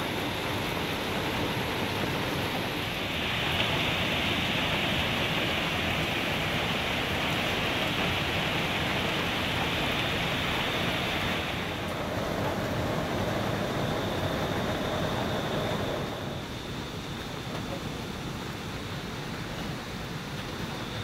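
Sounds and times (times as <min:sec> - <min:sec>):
heavy rain: 0:00.0 - 0:21.0.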